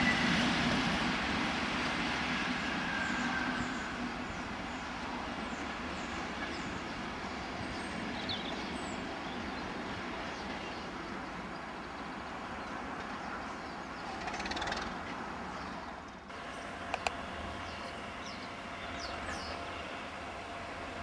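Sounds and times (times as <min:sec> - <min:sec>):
train engine and rail rumble: 0:00.0 - 0:21.0.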